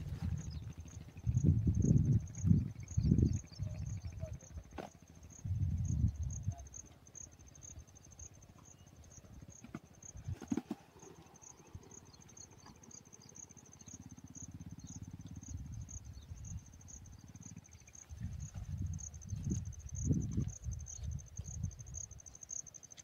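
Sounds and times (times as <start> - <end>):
insect chirping: 0.0 - 23.0.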